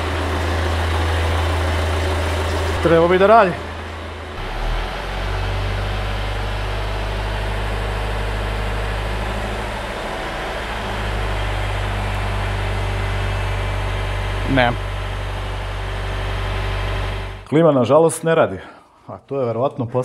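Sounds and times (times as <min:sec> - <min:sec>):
car engine idling: 0:00.0 - 0:17.4.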